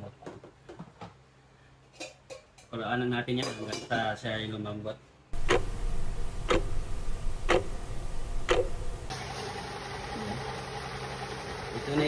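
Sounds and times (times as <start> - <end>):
clock ticking: 5.4 - 5.8, 6.4 - 6.8, 7.4 - 7.8, 8.4 - 8.7
low hum: 5.4 - 9.2.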